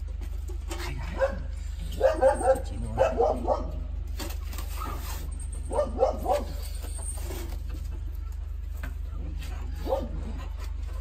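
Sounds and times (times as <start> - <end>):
steady low hum: 0.0 - 11.0
dog barking: 1.2 - 3.8, 5.7 - 6.6, 9.7 - 10.4.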